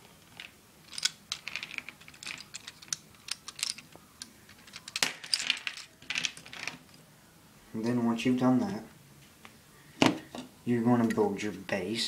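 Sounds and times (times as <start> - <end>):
plastic toy bricks clicking: 0.3 - 6.8.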